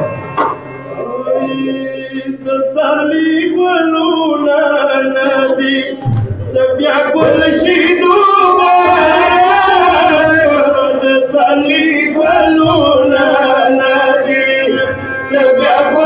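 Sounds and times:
man singing lament: 1.0 - 16.0
low thump: 6.0 - 8.0.

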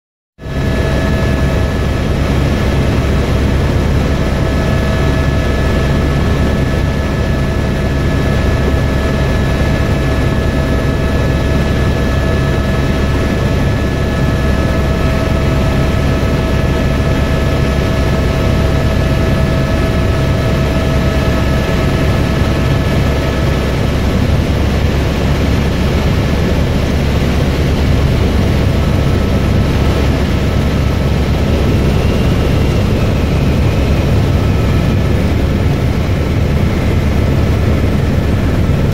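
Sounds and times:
helicopter engine and rotor rumble: 0.4 - 38.9.

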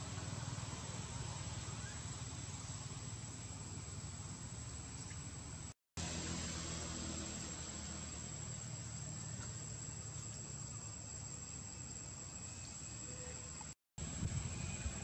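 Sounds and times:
hiss: 0.0 - 15.0
high-pitched insect drone: 6.9 - 15.0.

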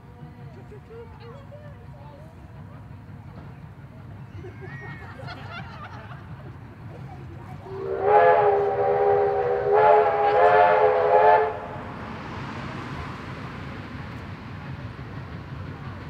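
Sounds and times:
train running noise: 0.0 - 16.0
steam locomotive whistle: 7.6 - 11.9.

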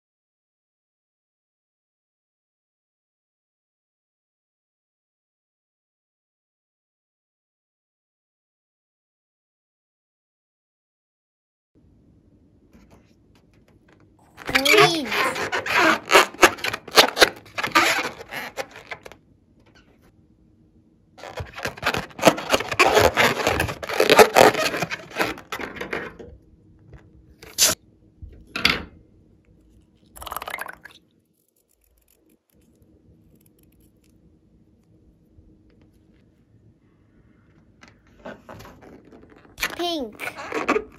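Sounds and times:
balloon rubbed and squeezed: 14.4 - 19.1, 21.2 - 25.6, 38.4 - 40.9.

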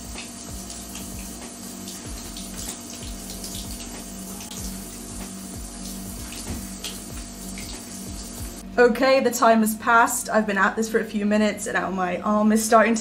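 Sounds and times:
shower spray on boots: 0.0 - 8.6.

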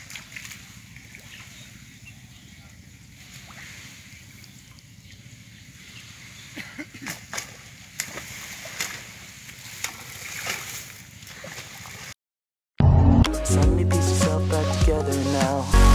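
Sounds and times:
steady outdoor hiss: 0.0 - 10.0
fish splashing: 7.0 - 12.1.

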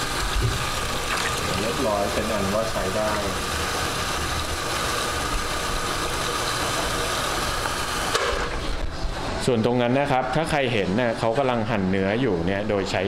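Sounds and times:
liquid gushing into bucket: 0.0 - 8.6.

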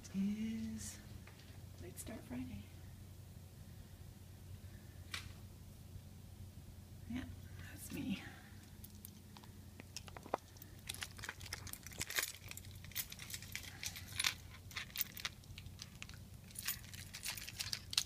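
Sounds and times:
steady low hum: 0.0 - 18.0
keys clinking and rattling: 8.6 - 9.2, 9.9 - 18.0.

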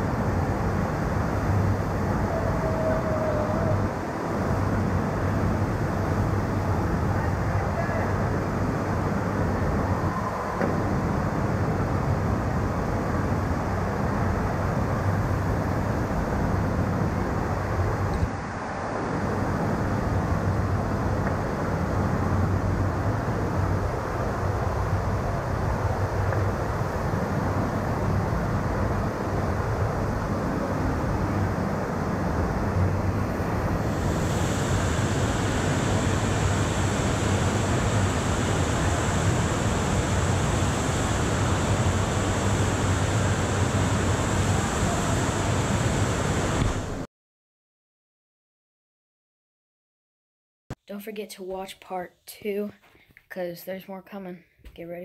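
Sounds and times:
rushing water of wave machine: 21.9 - 47.0.

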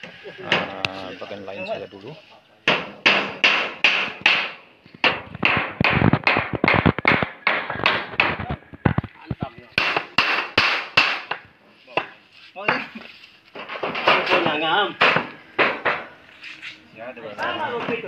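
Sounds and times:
hammer driving nails into wood: 2.7 - 8.4, 9.8 - 11.4.

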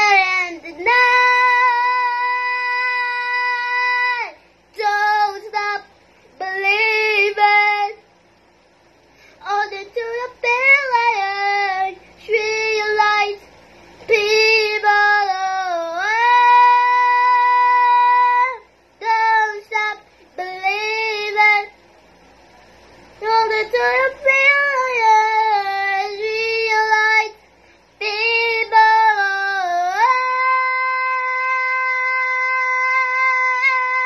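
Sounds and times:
boy singing unaccompanied: 0.0 - 8.0, 9.4 - 13.4, 14.1 - 21.8, 23.2 - 27.4, 28.0 - 34.0.

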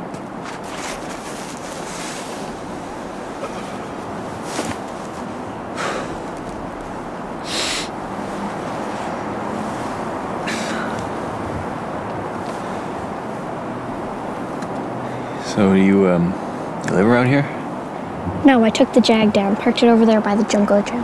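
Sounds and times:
outdoor background noise: 0.0 - 21.0
short hissing rustles: 0.6 - 6.6, 7.4 - 11.1.

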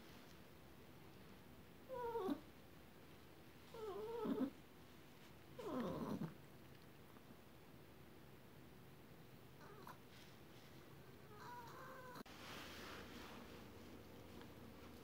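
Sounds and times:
dog whining: 1.9 - 2.4, 3.7 - 4.6.

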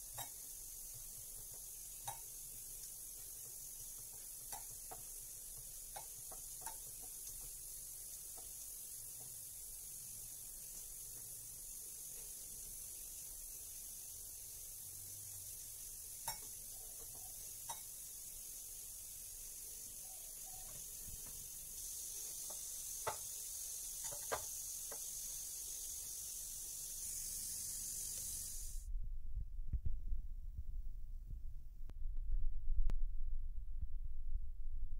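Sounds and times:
steady hiss: 0.0 - 28.9
faint clicks and taps: 0.1 - 7.6.

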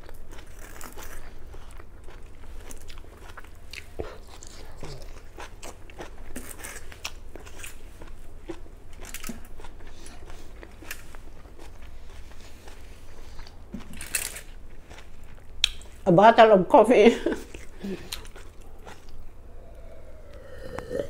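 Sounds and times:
chewing broccoli: 0.0 - 16.0, 17.4 - 21.0
mouth clicks: 19.1 - 21.0.

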